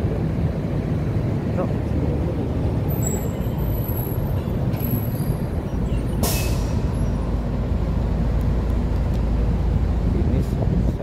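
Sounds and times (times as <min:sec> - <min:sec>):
city street traffic: 0:00.0 - 0:11.0
air brake hiss: 0:06.2 - 0:06.9.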